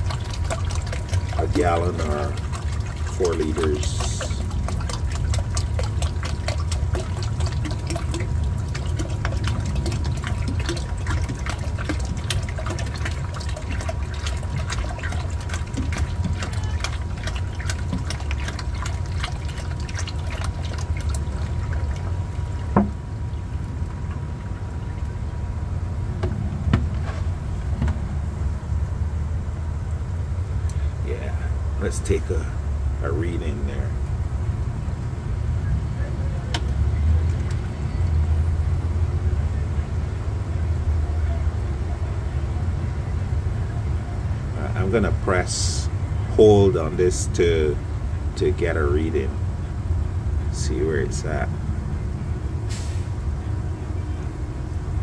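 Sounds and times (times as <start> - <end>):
water pouring and splashing: 0.0 - 27.2, 44.6 - 49.5, 50.4 - 55.0.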